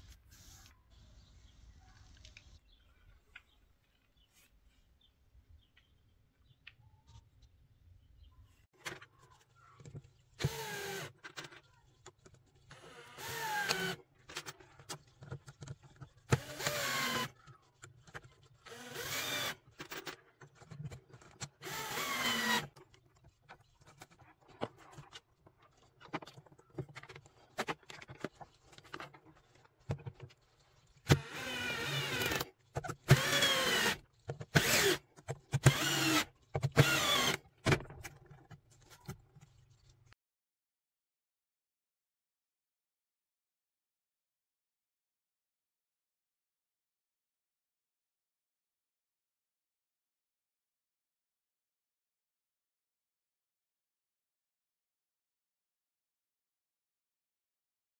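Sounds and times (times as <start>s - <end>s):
cordless drill driving screws: 10.4s - 11.2s, 12.7s - 14.0s, 16.3s - 17.4s, 18.6s - 20.0s, 21.5s - 22.8s, 31.0s - 37.5s.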